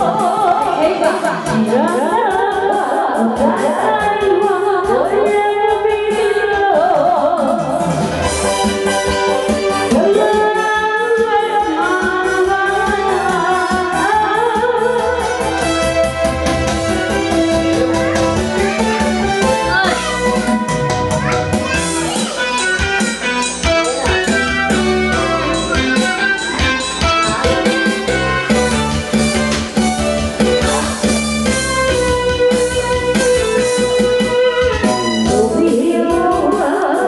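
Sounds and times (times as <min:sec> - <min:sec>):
person singing into a microphone: 0:00.0 - 0:08.1, 0:09.9 - 0:15.4, 0:35.2 - 0:37.0
backing track with steady beat: 0:00.0 - 0:37.0.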